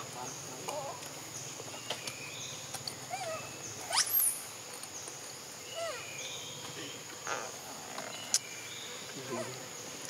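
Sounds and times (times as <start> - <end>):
high insect drone: 0.0 - 10.0
infant monkey crying: 3.1 - 4.4, 5.7 - 6.1
infant monkey squealing: 3.1 - 4.4, 5.8 - 6.0.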